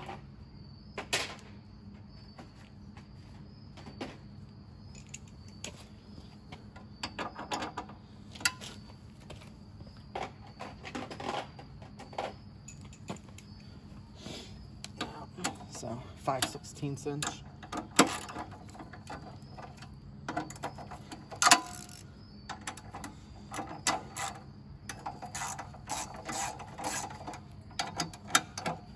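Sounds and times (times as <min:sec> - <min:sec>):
steady low hum: 0:00.0 - 0:28.9
metal tools clicking and clinking: 0:04.9 - 0:05.8, 0:12.6 - 0:13.4, 0:15.0 - 0:28.9.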